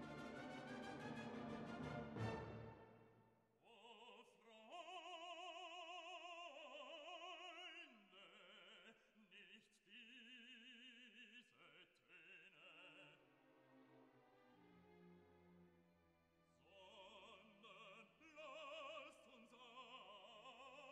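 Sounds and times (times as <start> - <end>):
music: 0.0 - 3.3, 13.0 - 17.3
operatic singing with vibrato: 3.6 - 13.2, 16.6 - 20.9.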